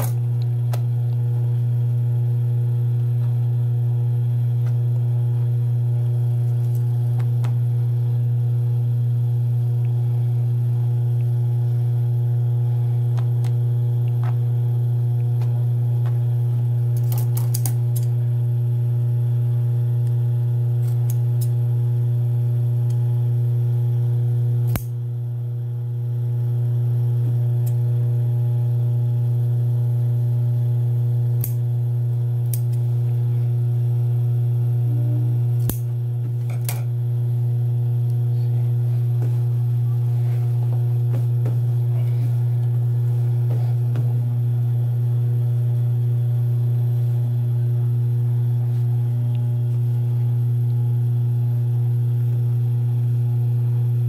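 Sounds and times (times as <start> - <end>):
low electrical hum: 0.0 - 54.0
scissor snips: 17.0 - 18.1, 24.7 - 25.0, 31.4 - 31.6, 35.6 - 35.9.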